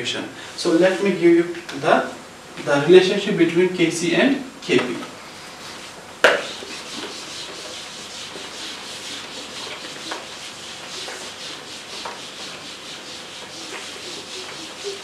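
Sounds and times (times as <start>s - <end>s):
eraser wiping a whiteboard: 5.5s - 15.0s.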